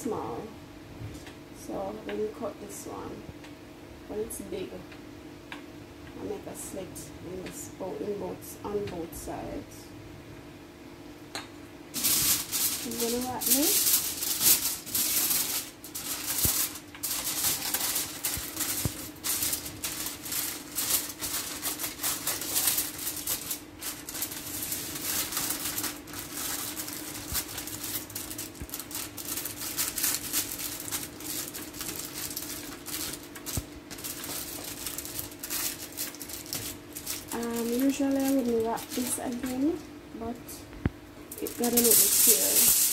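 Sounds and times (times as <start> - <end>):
aluminium foil crinkling: 11.9 - 39.9, 41.3 - 42.9.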